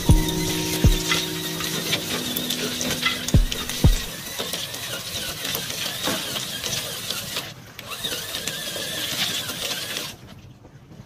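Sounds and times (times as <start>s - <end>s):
toy car electric motor whining: 4.1s - 10.3s.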